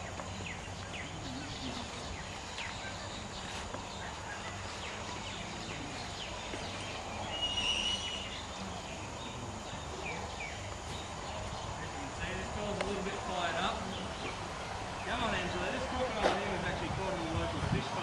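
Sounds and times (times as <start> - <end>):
high whistled note: 7.3 - 8.3.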